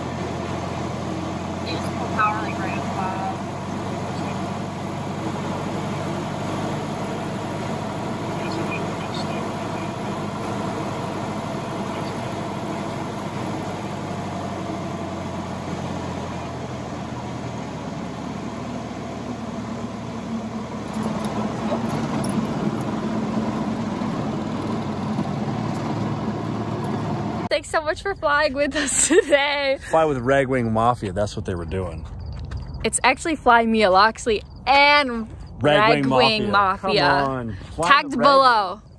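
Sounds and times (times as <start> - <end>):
piston aircraft engine running: 0.0 - 27.6.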